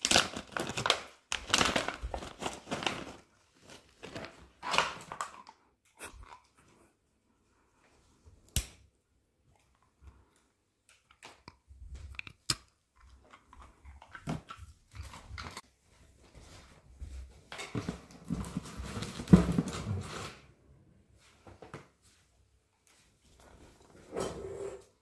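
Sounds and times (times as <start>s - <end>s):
dog crunching a treat: 10.9s - 15.6s
rustling and knocking in cardboard box: 17.7s - 20.1s.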